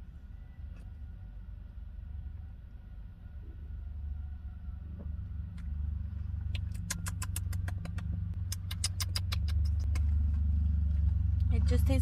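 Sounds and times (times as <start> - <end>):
car engine idling: 4.8 - 12.0
wet mouth clicks and lip smacks: 6.4 - 10.2.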